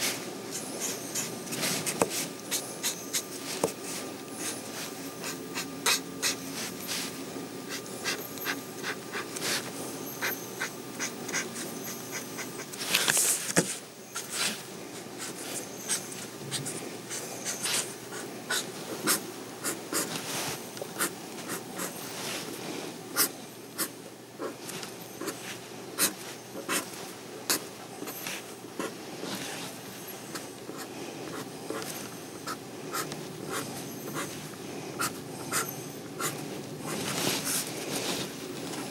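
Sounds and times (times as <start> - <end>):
ink pen scratching on paper: 0.6 - 3.8, 4.4 - 6.4, 7.7 - 14.6, 15.2 - 20.2, 21.0 - 22.0, 23.2 - 24.6, 25.2 - 26.9, 30.7 - 34.4, 35.0 - 36.4.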